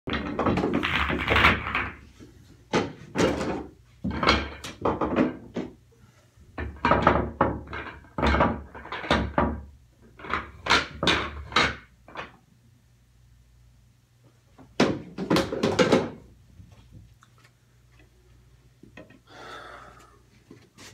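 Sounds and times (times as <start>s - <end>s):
pool balls clacking: 0.1s - 5.8s, 6.6s - 12.5s, 14.5s - 16.9s.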